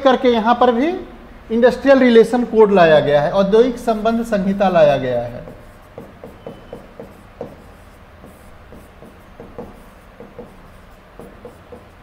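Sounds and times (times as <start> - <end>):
chalk tapping and scraping on blackboard: 3.8 - 12.0.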